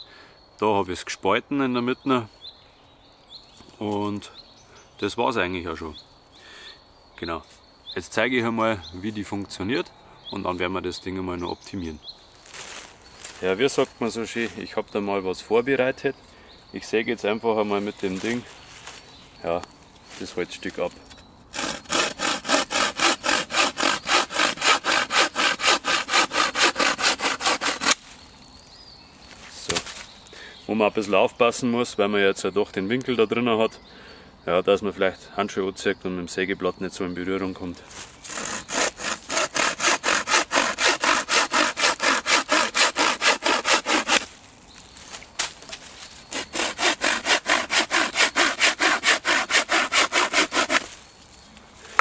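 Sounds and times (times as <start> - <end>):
bow saw cutting wood: 21.5 - 28.0, 38.2 - 44.3, 46.3 - 51.0.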